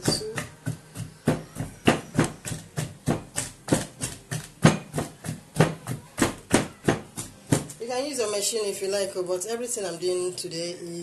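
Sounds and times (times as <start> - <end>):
wooden pestle pounding in mortar: 0.0 - 8.0.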